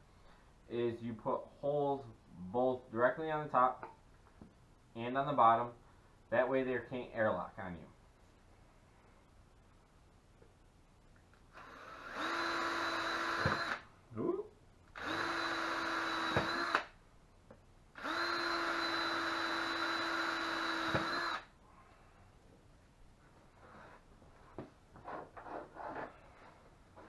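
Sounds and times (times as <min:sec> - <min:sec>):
cordless drill whining: 0:11.5 - 0:13.9, 0:14.9 - 0:17.0, 0:18.0 - 0:21.5.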